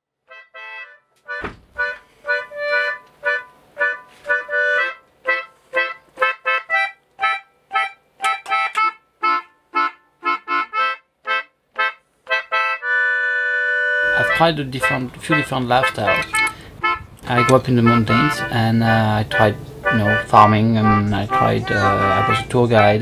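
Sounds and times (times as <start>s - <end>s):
concertina chords: 0.3s - 23.0s
low thump: 1.4s - 2.0s.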